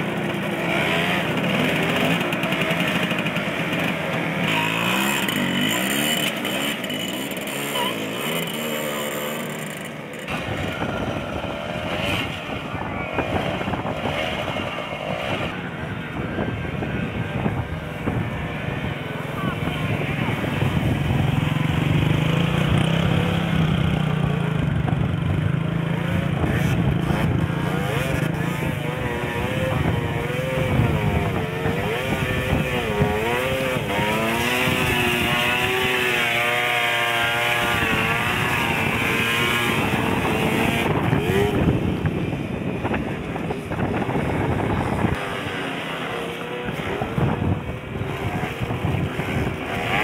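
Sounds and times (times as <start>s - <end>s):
scooter engine revving: 0.0s - 50.0s.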